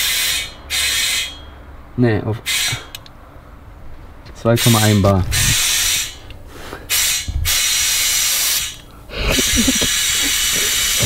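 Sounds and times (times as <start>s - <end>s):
compressed air hissing into tyre: 5.3s - 11.0s.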